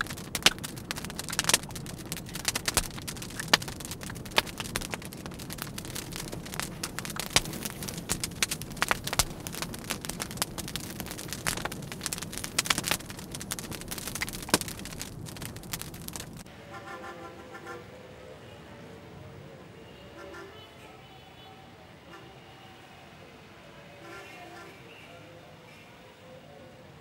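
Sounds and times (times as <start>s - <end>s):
crackling pops and clicks: 0.0s - 16.5s.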